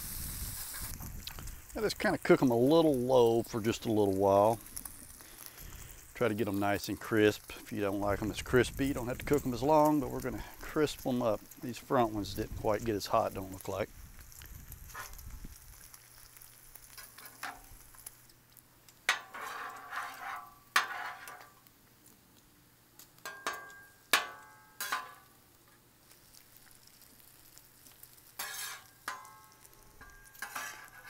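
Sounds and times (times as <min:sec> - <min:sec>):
bacon sizzling on a griddle: 0:00.0 - 0:31.0
metal spatula scraping and clanking: 0:16.9 - 0:17.7, 0:19.1 - 0:21.6, 0:23.2 - 0:25.3, 0:28.3 - 0:31.0.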